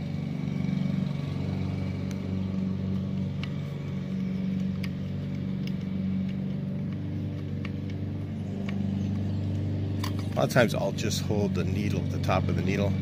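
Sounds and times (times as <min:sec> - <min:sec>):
motor humming: 0:00.0 - 0:13.0
light clicks of metal: 0:02.0 - 0:10.5.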